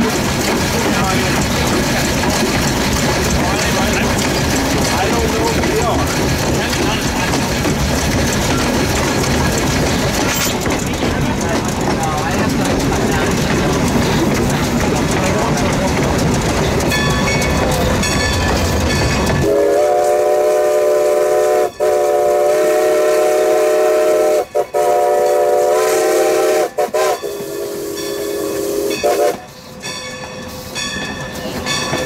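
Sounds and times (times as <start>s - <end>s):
locomotive running noise: 0.0s - 32.0s
steam locomotive whistle blasts: 19.4s - 29.5s.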